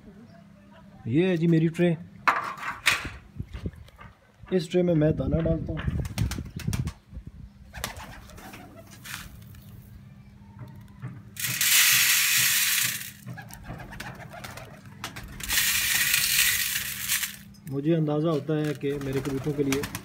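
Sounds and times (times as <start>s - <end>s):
pigeons cooing: 7.7s - 9.0s, 13.2s - 15.4s
seeds pouring onto metal tray: 11.4s - 13.3s, 15.4s - 17.5s.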